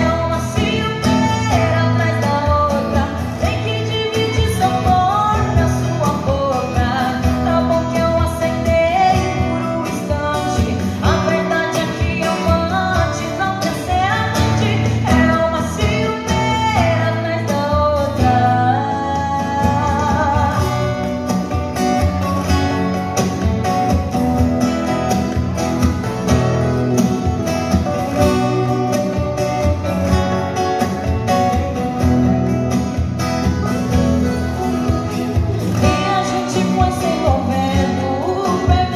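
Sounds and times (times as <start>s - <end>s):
woman singing into microphone: 0.0s - 21.7s, 35.7s - 38.9s
strummed acoustic guitar: 0.0s - 38.9s.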